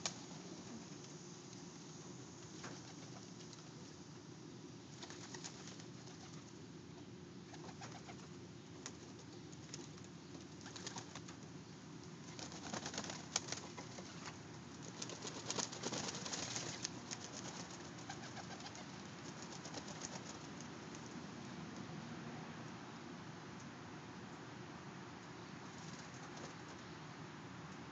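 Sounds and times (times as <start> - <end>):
wings flapping: 2.6 - 3.7, 4.9 - 6.5, 7.5 - 11.4, 12.3 - 21.0, 25.7 - 26.8.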